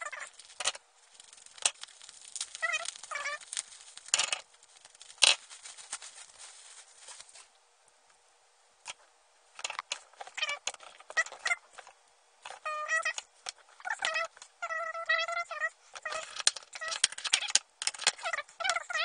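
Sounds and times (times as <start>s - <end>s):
bubble wrap crinkling: 0.0s - 7.6s
high-pitched squawks: 2.4s - 3.6s.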